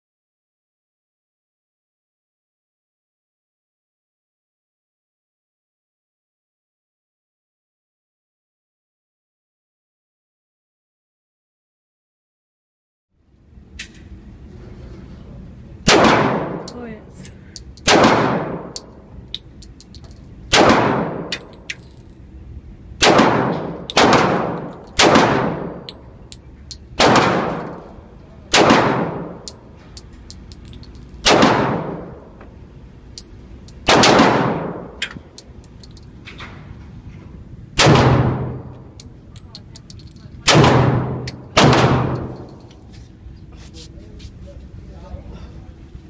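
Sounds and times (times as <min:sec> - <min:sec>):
pistol shots with reverberation: 0:15.9 - 0:16.7, 0:17.8 - 0:18.9, 0:20.5 - 0:21.6, 0:23.0 - 0:26.0, 0:27.0 - 0:27.8, 0:28.5 - 0:29.6, 0:31.2 - 0:32.2, 0:33.8 - 0:35.0, 0:37.8 - 0:38.8, 0:40.4 - 0:42.6
light metallic clinks: 0:18.8 - 0:20.5, 0:21.4 - 0:22.2, 0:25.8 - 0:28.1, 0:29.4 - 0:31.2, 0:33.1 - 0:33.9, 0:35.0 - 0:36.4, 0:38.7 - 0:40.4, 0:42.1 - 0:43.0.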